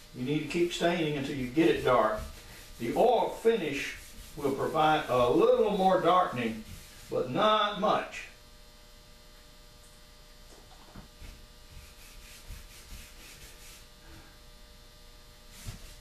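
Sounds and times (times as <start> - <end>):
steady electrical hum: 0.0 - 16.0
rag rubbing on wood: 0.2 - 7.4, 11.0 - 14.2, 15.5 - 16.0.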